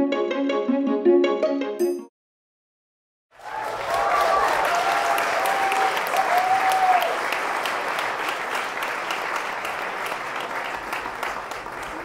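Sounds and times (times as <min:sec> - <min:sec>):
crowd applause: 0:03.3 - 0:12.0.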